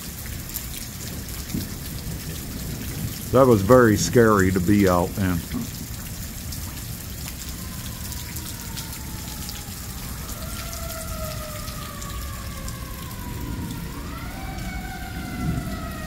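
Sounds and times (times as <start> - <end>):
steady rain: 0.0 - 16.0
fire engine sirens wailing: 3.2 - 16.0.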